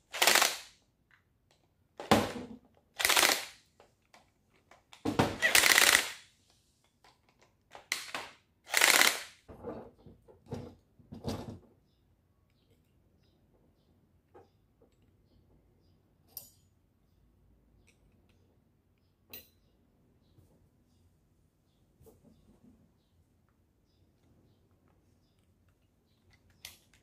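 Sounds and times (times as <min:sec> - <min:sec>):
cordless drill whirring: 0:00.1 - 0:00.6, 0:03.0 - 0:03.5, 0:05.3 - 0:06.2, 0:08.7 - 0:09.3.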